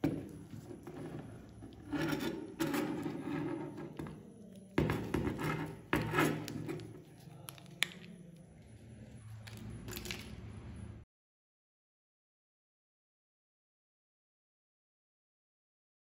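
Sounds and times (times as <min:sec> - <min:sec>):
metal scraping and rubbing: 0:00.0 - 0:07.4.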